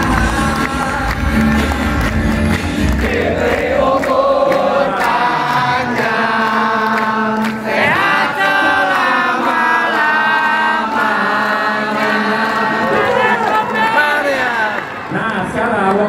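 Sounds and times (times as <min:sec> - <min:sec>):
many voices singing together: 0:00.0 - 0:15.1.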